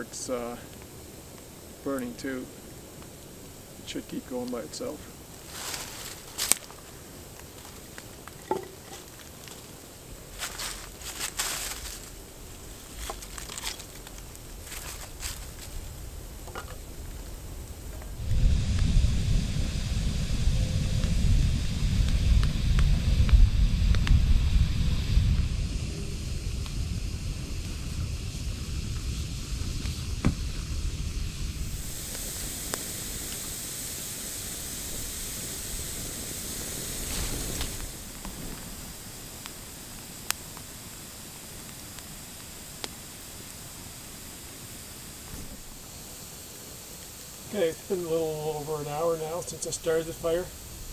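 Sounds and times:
fire crackles: 0:00.0 - 0:50.9
dry leaves and sticks rustling: 0:04.4 - 0:18.3.

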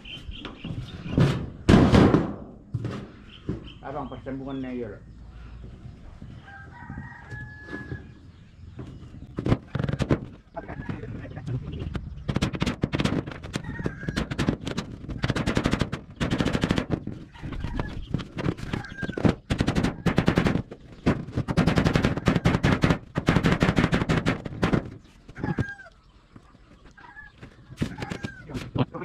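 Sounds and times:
clattering impacts on metal roofing: 0:00.3 - 0:04.0, 0:06.9 - 0:25.8
chickens clucking: 0:03.1 - 0:16.2, 0:16.8 - 0:22.6, 0:24.6 - 0:29.0.

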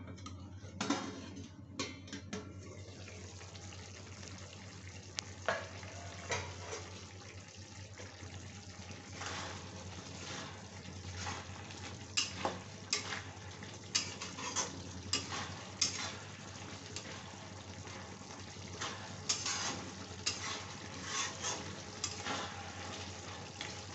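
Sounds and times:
frying sizzle: 0:02.5 - 0:23.9
metal spatula scraping steel pan: 0:13.9 - 0:16.2, 0:18.8 - 0:22.9.

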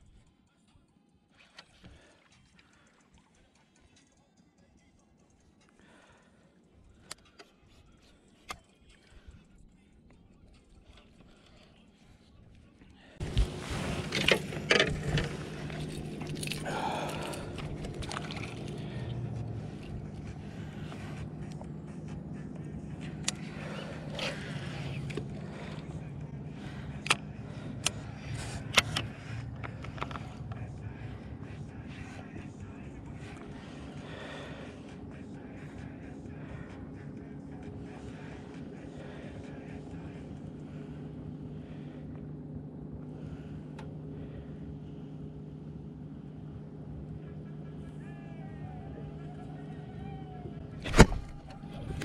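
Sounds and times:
steady low hum: 0:00.0 - 0:52.0
handling clicks and knocks: 0:13.2 - 0:20.3, 0:26.9 - 0:30.6.

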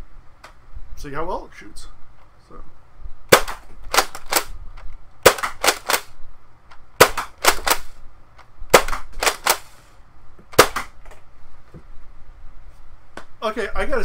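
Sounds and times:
toy blaster plastic clacks: 0:03.9 - 0:04.5.

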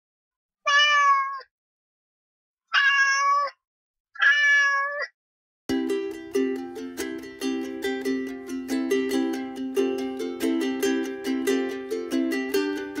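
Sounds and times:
cat meowing: 0:00.6 - 0:01.5, 0:02.7 - 0:03.6, 0:04.2 - 0:05.1
plucked string music: 0:05.7 - 0:13.0.

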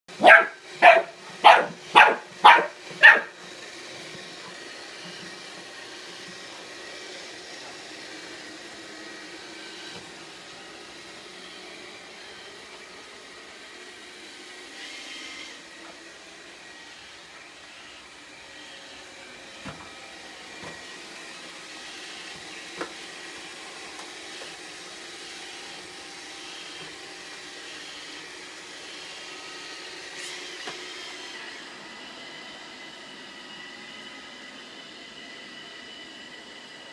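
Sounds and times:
robot vacuum humming: 0:00.1 - 0:36.9
small dog barking: 0:00.2 - 0:03.3.

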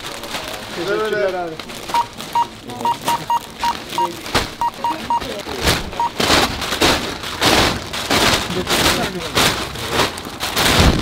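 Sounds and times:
barcode scanner beeping: 0:01.9 - 0:05.4, 0:06.0 - 0:06.2
plastic bags thudding into car boot: 0:03.8 - 0:04.6, 0:05.2 - 0:11.0.

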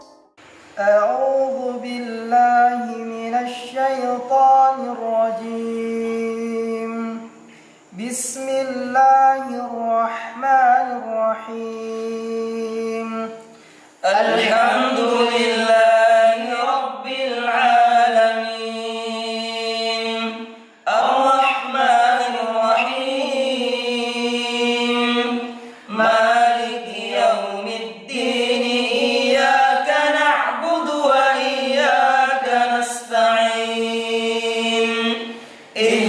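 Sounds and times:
man chanting recitation: 0:00.8 - 0:36.0.

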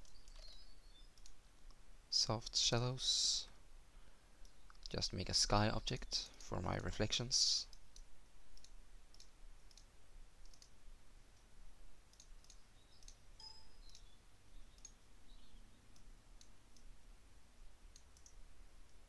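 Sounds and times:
computer mouse clicks: 0:00.0 - 0:01.8, 0:07.7 - 0:10.8, 0:12.1 - 0:14.1, 0:14.7 - 0:15.0, 0:17.9 - 0:19.0
brief faint tone: 0:13.4 - 0:13.9.

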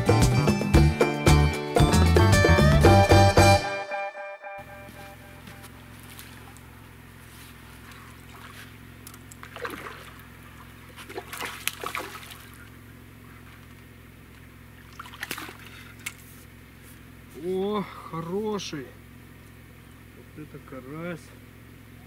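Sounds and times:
steady low hum: 0:04.6 - 0:22.0
fish splashing in water: 0:05.9 - 0:13.8, 0:14.6 - 0:16.4.

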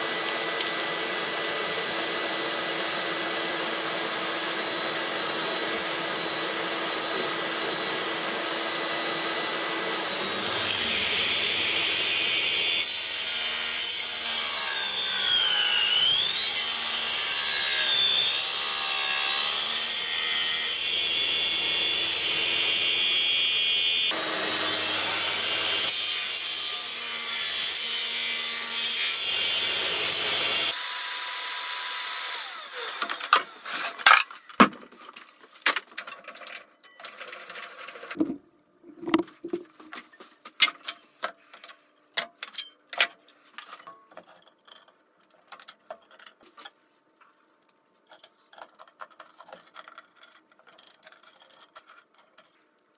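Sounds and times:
table saw cutting plywood: 0:00.0 - 0:33.9.

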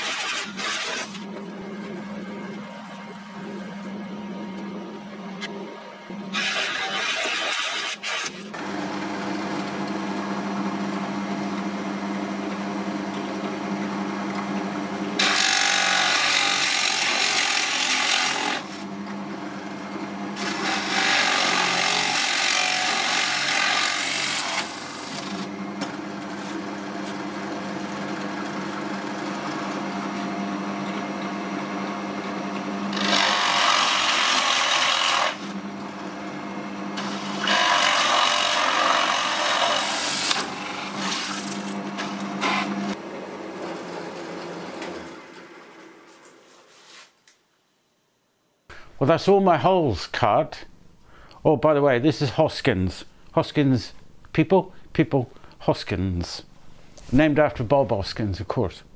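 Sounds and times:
drill bit cutting through plywood: 0:00.0 - 0:01.2, 0:06.3 - 0:08.4, 0:20.4 - 0:25.5, 0:32.9 - 0:35.5, 0:37.0 - 0:41.2
drill press motor hum: 0:00.0 - 0:46.2.

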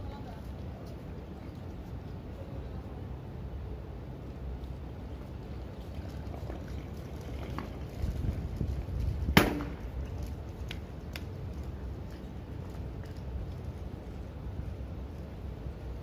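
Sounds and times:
wind rumble on microphone: 0:04.8 - 0:16.0.

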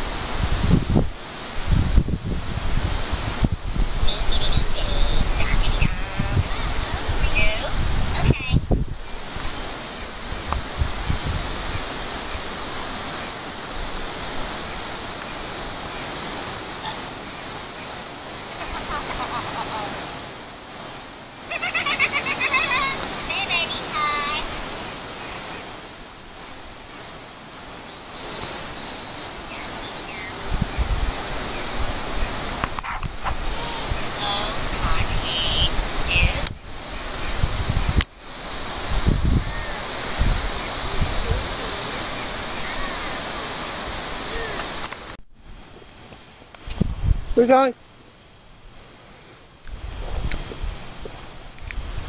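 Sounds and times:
low rumbling on microphone: 0:00.0 - 0:12.9, 0:30.4 - 0:43.2, 0:46.7 - 0:47.4
insects chirping: 0:00.0 - 0:52.0
outdoor hiss: 0:00.0 - 0:52.0
rustling and wind: 0:00.0 - 0:52.0.

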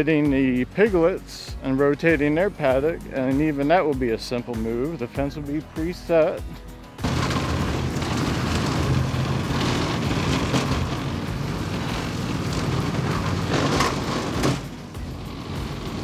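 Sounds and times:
metal hut scraping and rattling: 0:01.8 - 0:16.0
vehicle engine running: 0:06.4 - 0:16.0.

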